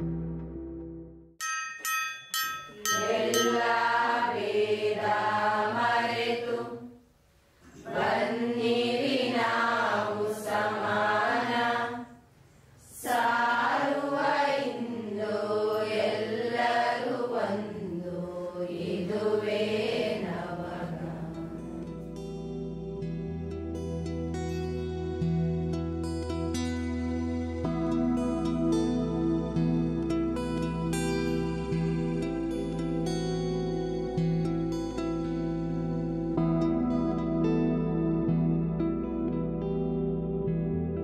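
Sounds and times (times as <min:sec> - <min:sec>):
slow sung chant: 0:02.7 - 0:22.2.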